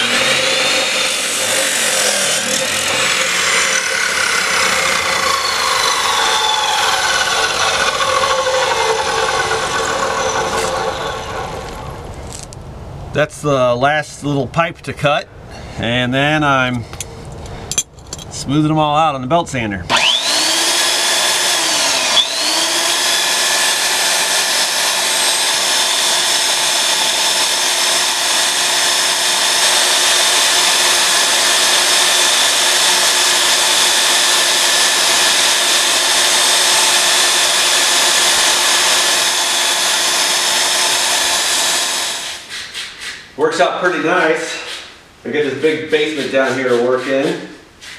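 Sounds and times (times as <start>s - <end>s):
belt sander whining: 0.0s - 12.5s, 19.9s - 42.7s.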